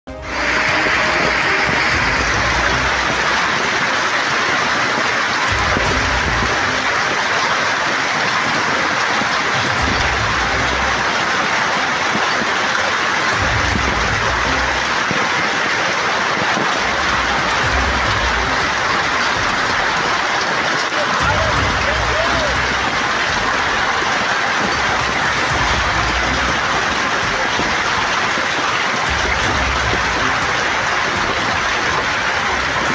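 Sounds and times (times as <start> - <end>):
heavy hail clattering: 0.4 - 32.9.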